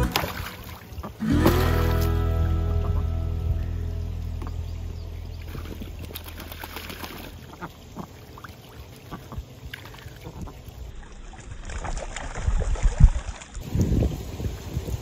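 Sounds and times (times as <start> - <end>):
ducks splashing in water: 0.0 - 2.0, 5.3 - 15.0
wind buffeting microphone: 12.3 - 15.0.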